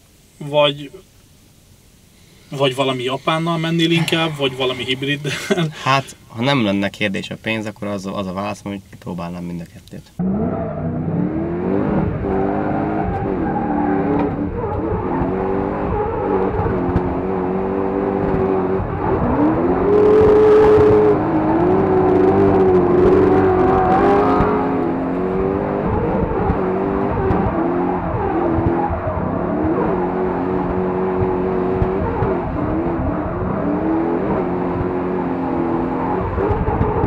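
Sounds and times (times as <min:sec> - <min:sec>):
short hiss: 0:00.0 - 0:06.3
car engine revving: 0:10.2 - 0:37.0.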